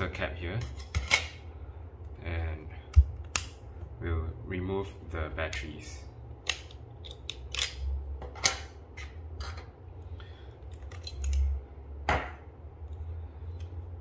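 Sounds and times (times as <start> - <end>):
hard plastic clicks and snaps: 2.9 - 3.6.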